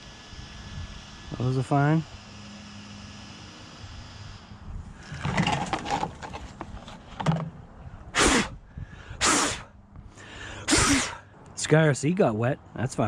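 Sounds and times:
short bursts of hissing air: 0:00.0 - 0:05.2, 0:08.1 - 0:09.8, 0:10.5 - 0:11.3
rustling and handling knocks: 0:05.1 - 0:07.6.

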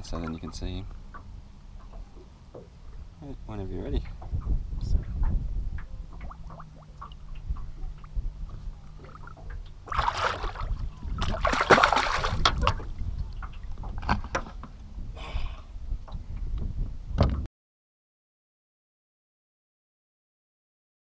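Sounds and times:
fish splashing in water: 0:08.9 - 0:13.6.

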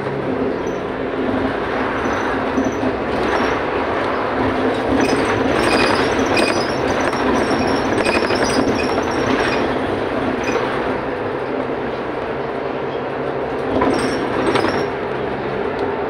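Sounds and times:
bus engine and road drone: 0:00.0 - 0:16.0
interior fittings rattling: 0:04.8 - 0:10.9, 0:13.7 - 0:15.0.

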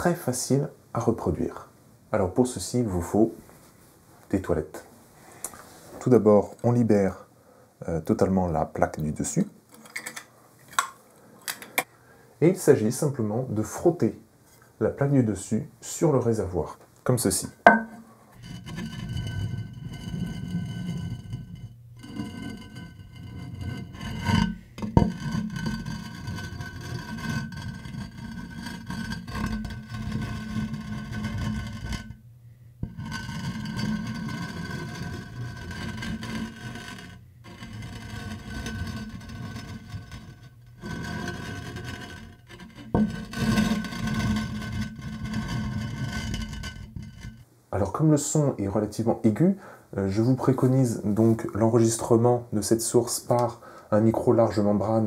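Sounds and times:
sharp knock: 0:17.7 - 0:18.1
ceramic lid grinding across tank: 0:17.7 - 0:32.2, 0:32.8 - 0:47.4.

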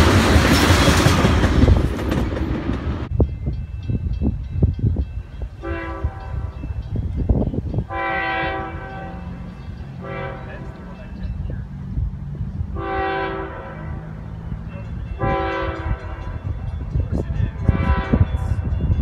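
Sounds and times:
freight train cars rolling: 0:00.0 - 0:19.0
distant locomotive air horn: 0:05.6 - 0:06.7, 0:07.9 - 0:11.0, 0:12.7 - 0:14.5, 0:15.2 - 0:16.4, 0:17.6 - 0:18.5.

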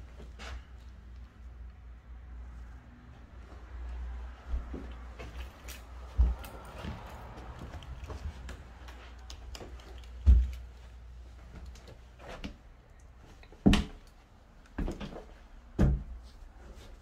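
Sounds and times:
footsteps thumping and knocking: 0:06.0 - 0:08.7, 0:10.1 - 0:10.9, 0:14.8 - 0:16.4.

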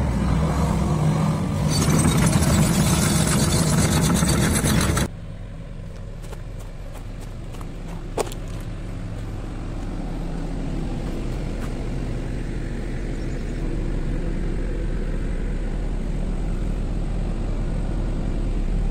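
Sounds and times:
excavator diesel engine running: 0:00.0 - 0:18.9.

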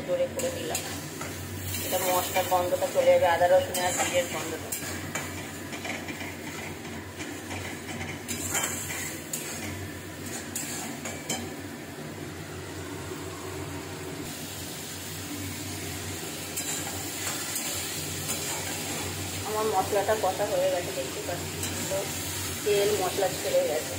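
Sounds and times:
steady sizzle: 0:00.0 - 0:23.9
metal spatula scraping a pan: 0:03.7 - 0:06.8, 0:07.5 - 0:11.5.

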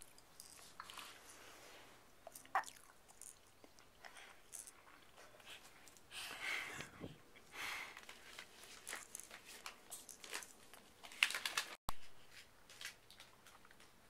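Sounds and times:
baby sucking and gnawing: 0:02.2 - 0:06.1.

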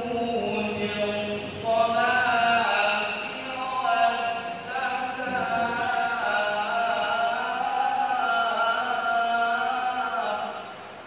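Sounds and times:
man chanting into a microphone: 0:00.0 - 0:10.8.

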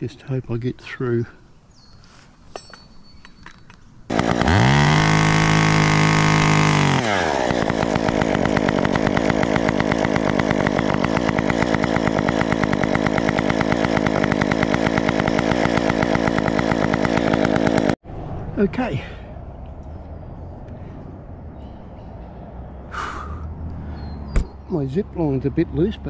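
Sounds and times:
chainsaw cutting a branch: 0:04.1 - 0:18.0.

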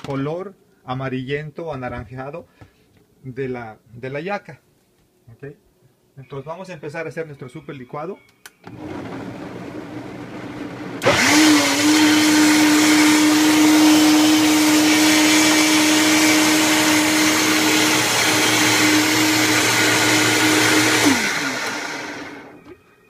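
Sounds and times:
blender motor running: 0:08.7 - 0:22.6.

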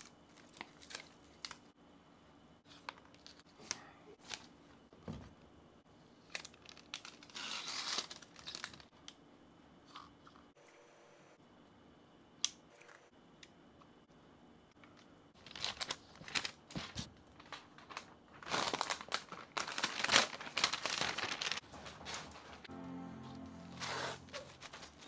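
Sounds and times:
plastic wrap crinkling and tearing: 0:00.0 - 0:01.7, 0:06.2 - 0:08.9, 0:15.4 - 0:22.7, 0:23.8 - 0:25.0.

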